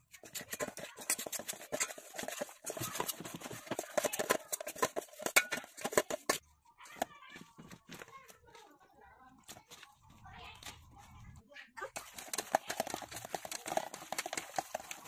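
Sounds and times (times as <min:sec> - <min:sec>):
metal spoon scraping a steel bowl: 0:00.0 - 0:06.4, 0:12.0 - 0:15.0.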